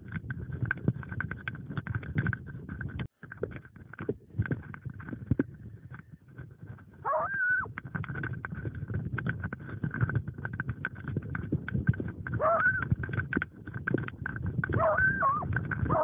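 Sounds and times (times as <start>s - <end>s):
hound baying: 7.0s - 7.7s, 12.4s - 12.8s, 14.7s - 16.0s.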